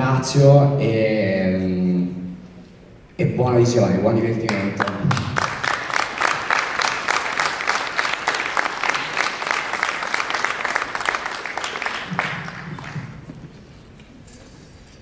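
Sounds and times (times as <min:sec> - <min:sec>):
crowd applauding: 0:04.4 - 0:13.6.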